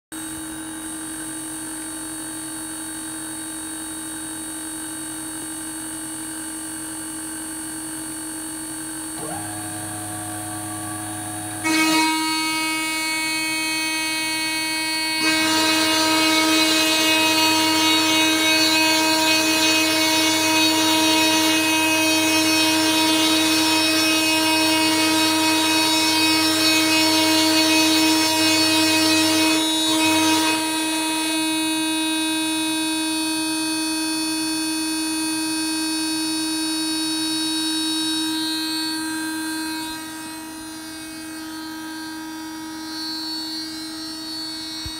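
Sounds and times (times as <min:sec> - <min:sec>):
router spindle whine: 0:08.6 - 0:34.4, 0:37.2 - 0:44.9
rough cutting noise: 0:09.2 - 0:18.4.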